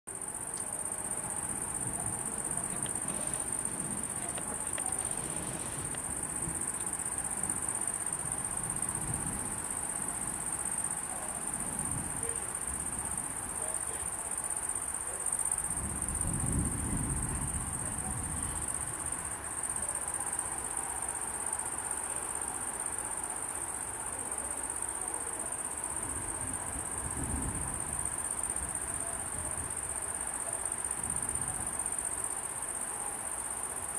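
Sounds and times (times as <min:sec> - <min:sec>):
chorus of night insects: 0:00.1 - 0:33.9
low rumble of thunder: 0:01.1 - 0:13.7, 0:15.5 - 0:19.4, 0:26.0 - 0:29.9.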